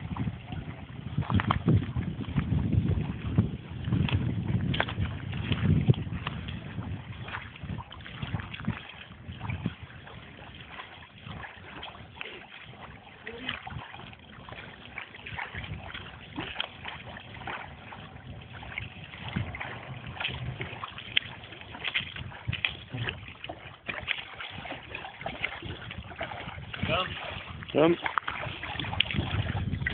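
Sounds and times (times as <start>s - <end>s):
wind noise on microphone: 0.0s - 29.9s
small motorboat approaching: 9.8s - 29.9s.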